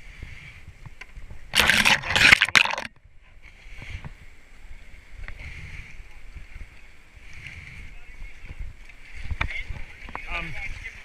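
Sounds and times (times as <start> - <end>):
kayak hull scraping over grass: 0.0 - 11.0
faint steady rush: 3.1 - 11.0.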